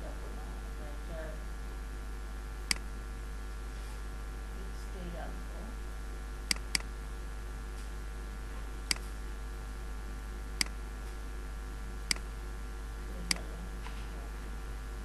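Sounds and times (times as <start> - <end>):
low electrical hum: 0.0 - 15.0
computer mouse clicks: 6.5 - 6.9, 8.9 - 9.2.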